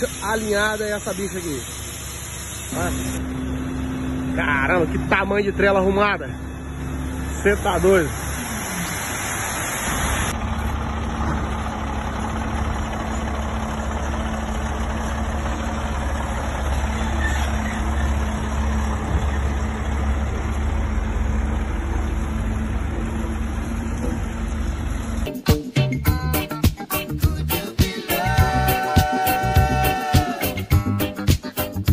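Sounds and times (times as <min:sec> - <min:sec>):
diesel engine idling: 0:00.0 - 0:25.4.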